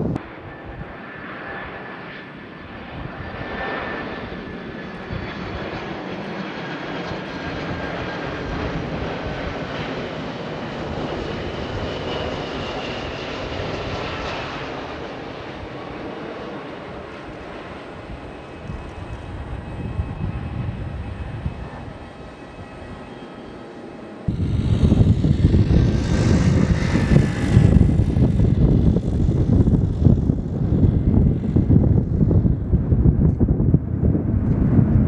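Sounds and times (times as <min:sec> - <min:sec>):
jet engines rumbling and whining: 0:00.0 - 0:35.0.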